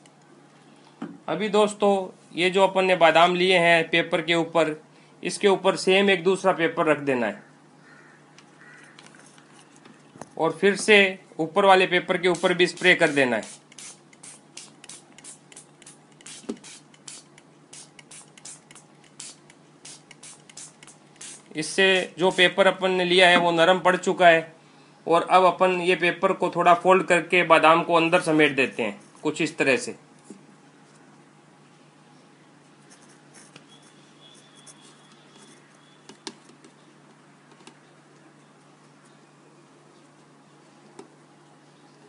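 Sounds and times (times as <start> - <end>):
spray bottle hissing: 12.3 - 22.5.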